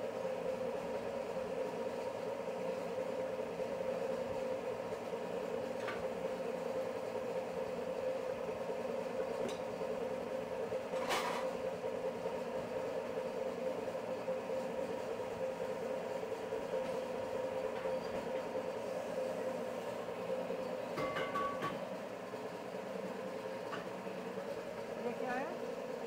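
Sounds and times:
machinery humming: 11.6s - 26.0s.

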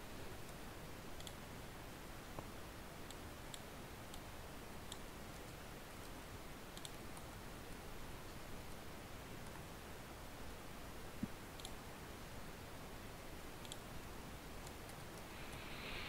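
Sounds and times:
low room hiss: 0.0s - 16.0s
mouse and keyboard clicks: 6.8s - 7.3s, 13.6s - 13.9s.

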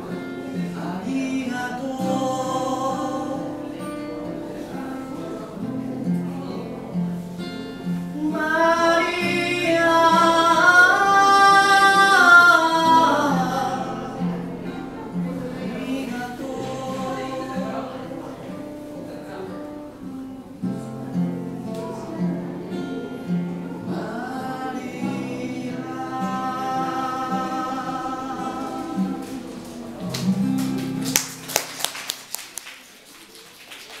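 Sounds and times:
man singing: 0.0s - 6.9s, 7.9s - 18.6s, 21.9s - 30.5s
acoustic guitar strumming: 0.0s - 31.8s
people clapping: 28.6s - 34.0s.

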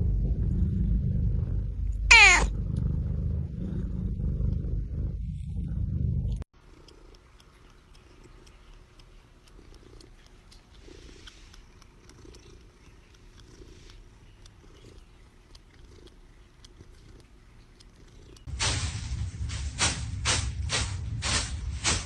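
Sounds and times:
cat purring: 0.0s - 18.6s.

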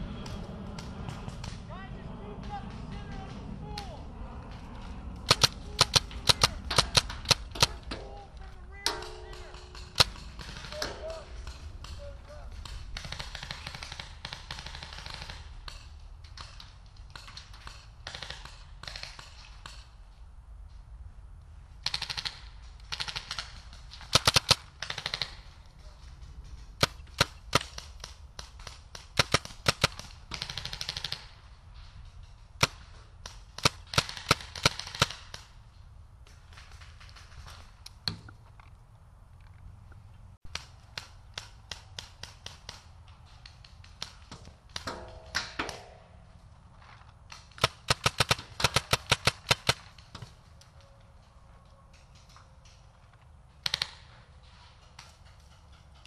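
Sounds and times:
paintball markers firing: 5.2s - 19.9s, 47.3s - 50.8s, 53.6s - 54.2s.

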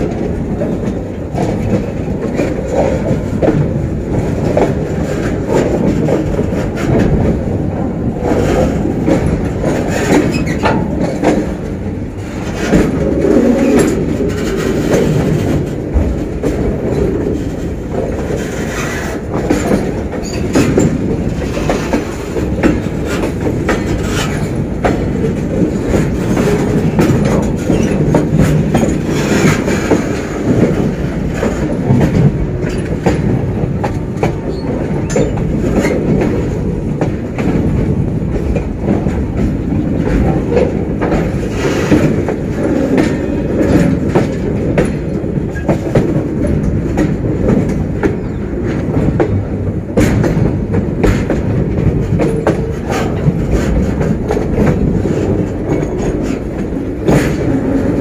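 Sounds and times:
train clicks and knocks: 0.0s - 58.0s
train wheels rumbling on rail: 0.0s - 58.0s.

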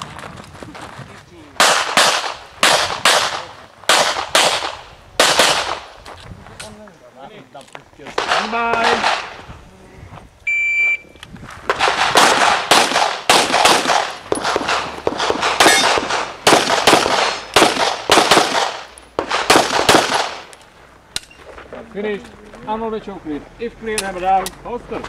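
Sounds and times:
pistol shots: 1.6s - 6.0s, 8.2s - 9.4s, 11.7s - 20.5s
shot timer beep: 10.5s - 11.0s.

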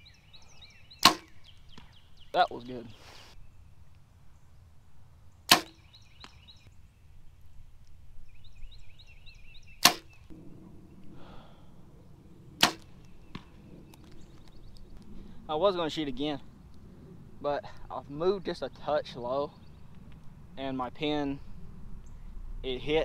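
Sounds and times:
arrow striking target: 1.0s - 1.9s, 5.5s - 6.4s, 9.8s - 10.4s, 12.6s - 13.6s
bow string snapping: 1.0s - 1.9s, 5.5s - 6.4s, 9.8s - 10.3s, 12.6s - 15.2s.

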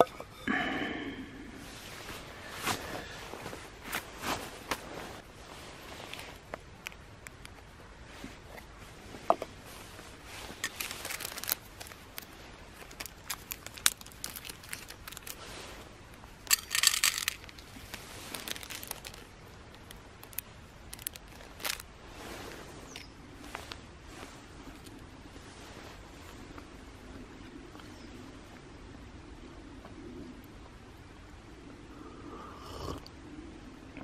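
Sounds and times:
plastic bag crinkling: 10.4s - 15.5s, 16.5s - 21.9s
small tin opening ring: 16.5s - 17.7s.

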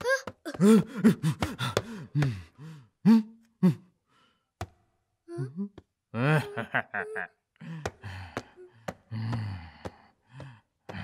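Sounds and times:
man making vocal sounds: 5.3s - 7.3s.

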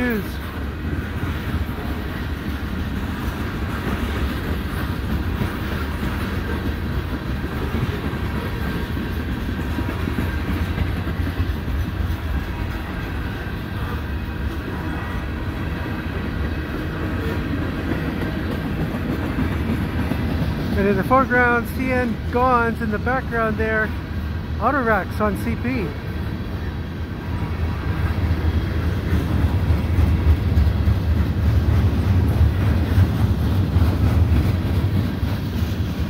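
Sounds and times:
train wheels on rail: 0.0s - 36.0s.

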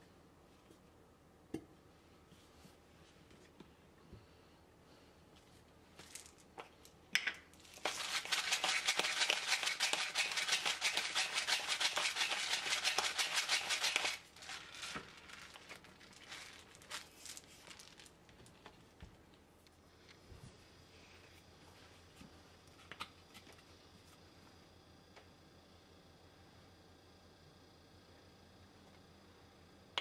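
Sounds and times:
pepper mill grinding: 6.0s - 18.2s.

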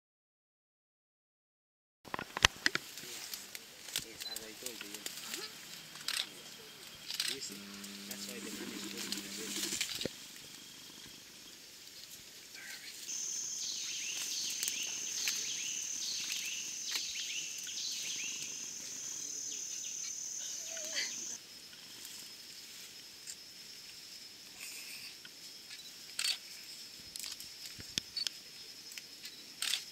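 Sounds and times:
high-pitched insect buzz: 4.3s - 11.6s, 12.8s - 26.8s.

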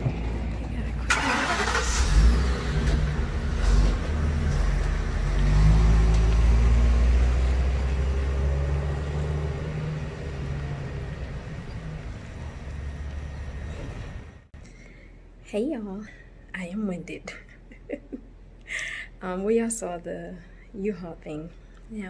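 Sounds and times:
vehicle engine rumbling: 0.0s - 14.6s.

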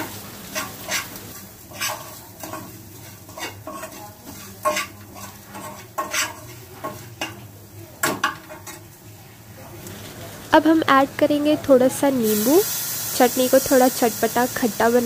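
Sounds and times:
spoon scraping a pan: 0.0s - 7.4s, 8.0s - 8.9s
faint sizzle: 0.0s - 15.0s.

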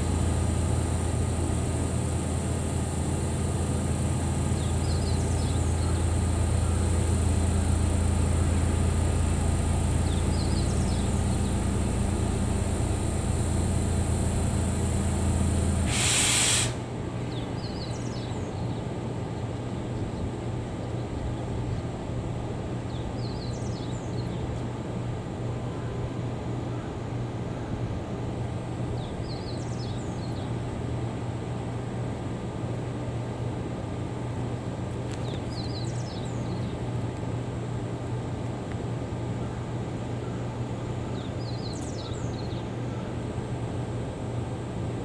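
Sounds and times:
air hissing: 0.0s - 16.9s
locomotive machinery humming: 0.0s - 18.3s
faint high whine: 0.0s - 18.5s.

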